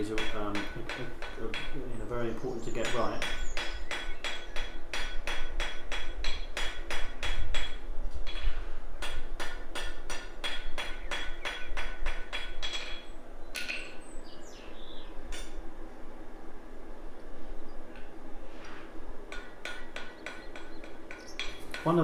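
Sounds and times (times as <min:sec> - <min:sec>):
hammer striking steel on anvil: 0:00.0 - 0:01.9, 0:02.8 - 0:14.0, 0:19.3 - 0:22.0.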